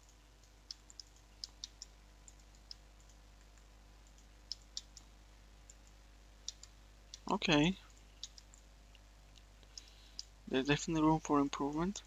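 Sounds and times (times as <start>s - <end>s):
low steady hum: 0.0s - 12.0s
mouse and keyboard clicks: 0.7s - 5.1s, 5.7s - 7.3s, 7.9s - 8.6s.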